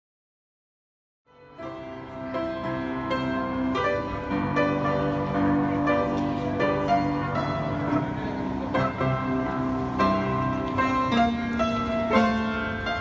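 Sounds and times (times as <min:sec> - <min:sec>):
piano melody: 0:01.3 - 0:13.0.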